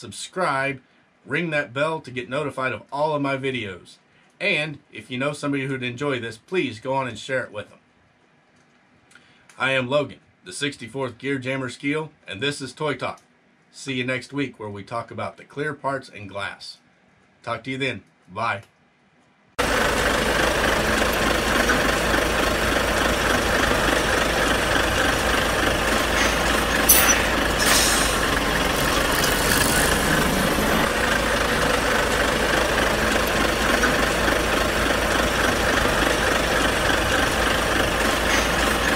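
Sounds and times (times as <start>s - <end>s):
diesel truck engine idling: 19.6s - 38.9s
short air hisses: 26.1s - 30.8s.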